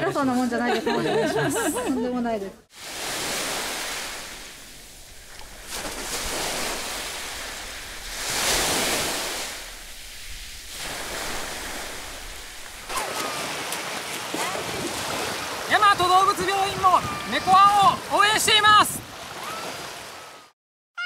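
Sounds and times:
sea waves washing onto beach: 2.6s - 20.5s
swimmer splashing in shallows: 2.7s - 20.3s.

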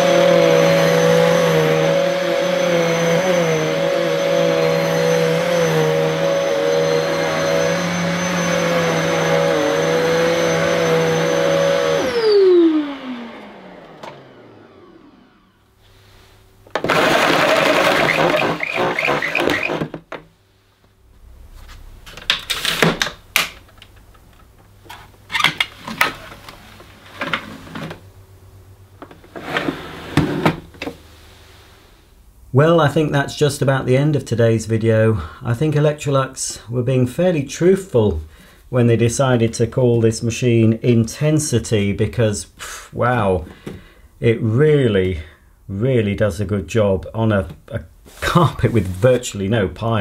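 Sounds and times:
vacuum cleaner motor winding down: 0.0s - 15.8s, 16.7s - 20.0s.

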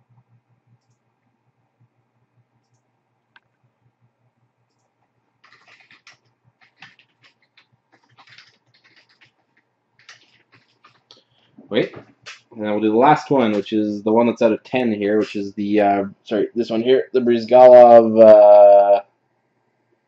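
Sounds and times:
faint low hum: 0.0s - 20.0s
typing on computer keyboard: 4.7s - 11.2s.

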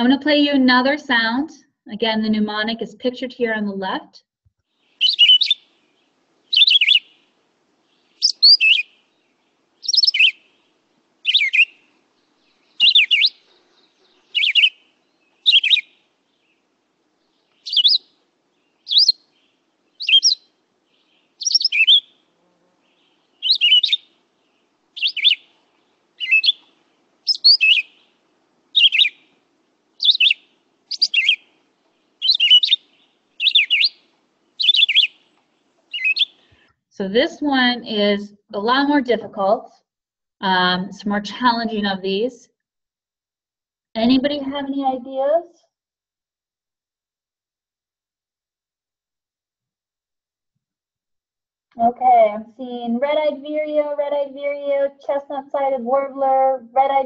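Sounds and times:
bird singing high phrases: 4.9s - 7.2s, 7.8s - 22.2s, 22.8s - 29.3s, 30.0s - 36.6s.

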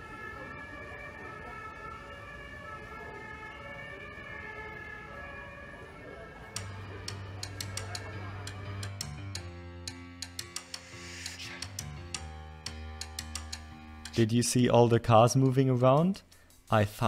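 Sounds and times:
siren wailing: 0.0s - 9.0s
music with bass and ticking beat: 6.6s - 14.3s.

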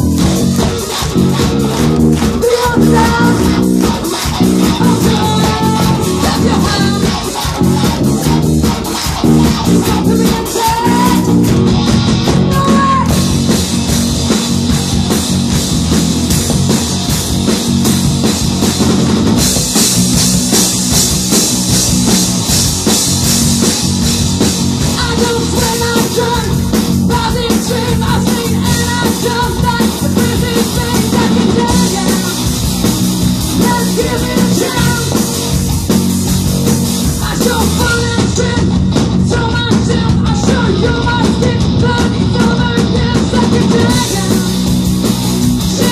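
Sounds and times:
bass guitar: 0.0s - 45.9s
drum kit: 0.0s - 45.9s
electric guitar: 0.0s - 45.9s
woman singing into a microphone: 4.9s - 7.1s.

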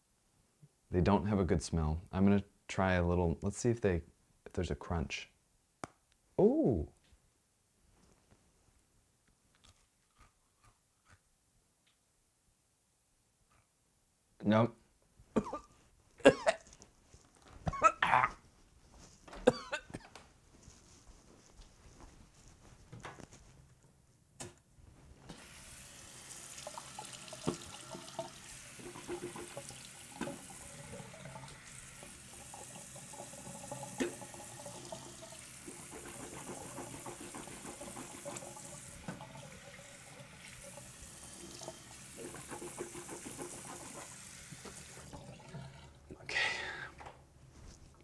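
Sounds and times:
water running: 25.3s - 46.3s.

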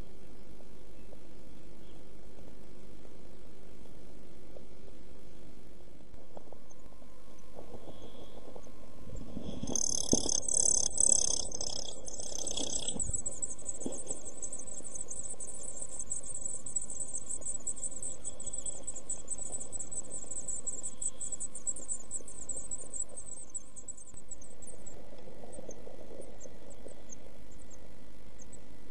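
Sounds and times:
rapid high chittering: 9.1s - 25.0s
nestlings begging calls: 9.4s - 25.0s.

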